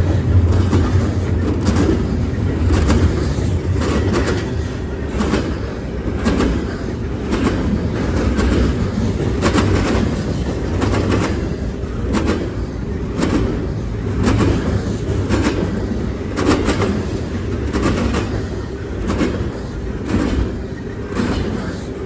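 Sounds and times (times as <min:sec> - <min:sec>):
freight train wheels rumbling: 0:00.0 - 0:22.0
rail wheel clacks: 0:00.0 - 0:22.0.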